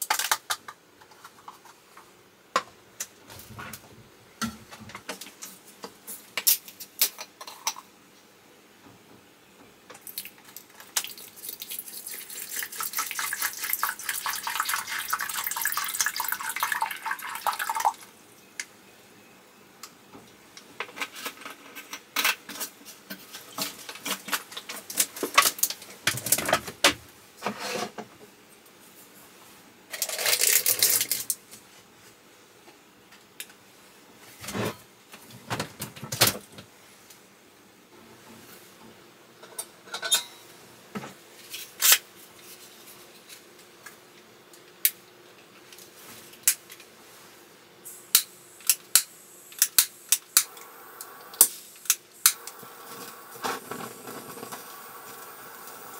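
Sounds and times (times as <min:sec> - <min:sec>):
water pouring: 0:11.0 - 0:18.0.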